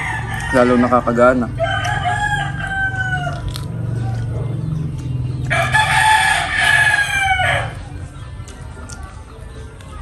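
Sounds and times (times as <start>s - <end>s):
rooster crowing: 1.5s - 3.6s, 5.5s - 7.8s.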